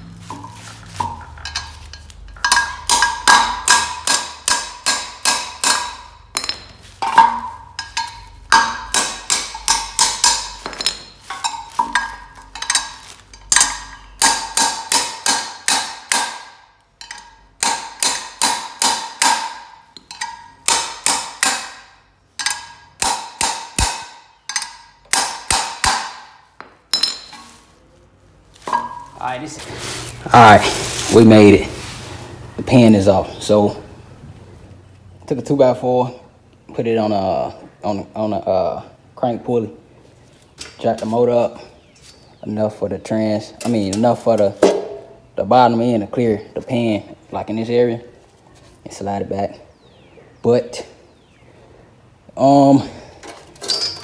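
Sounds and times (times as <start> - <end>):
hammer striking metal wrench: 0.3 - 27.5.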